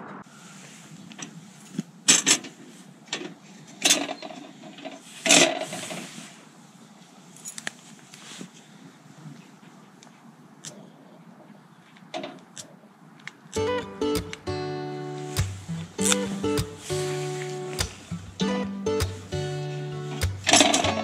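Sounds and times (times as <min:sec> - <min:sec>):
lantern sharp clicks: 0:13.5 - 0:14.4, 0:15.3 - 0:18.4, 0:19.0 - 0:19.3, 0:20.1 - 0:21.0.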